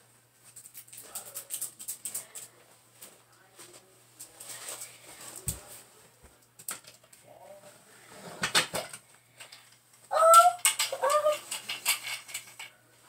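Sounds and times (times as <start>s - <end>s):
rustling and knocking of handled objects: 0.0s - 13.0s
high-pitched cry: 10.1s - 11.4s.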